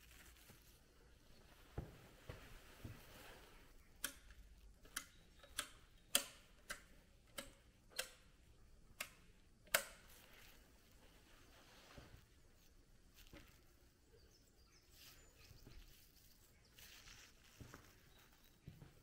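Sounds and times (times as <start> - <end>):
footsteps on hard floor: 1.7 - 3.2, 17.5 - 19.0.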